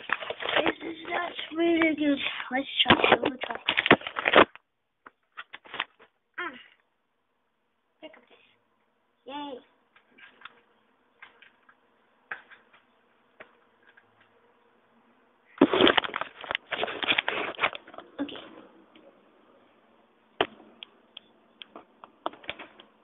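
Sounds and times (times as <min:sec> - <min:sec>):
rustling and crackling: 0:00.0 - 0:06.2, 0:09.9 - 0:14.5, 0:15.5 - 0:19.2, 0:21.6 - 0:23.0.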